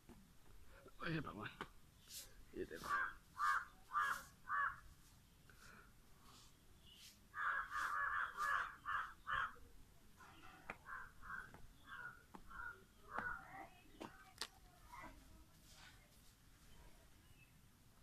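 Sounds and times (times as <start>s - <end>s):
crows cawing: 2.8s - 4.9s, 7.3s - 9.7s, 10.7s - 13.5s.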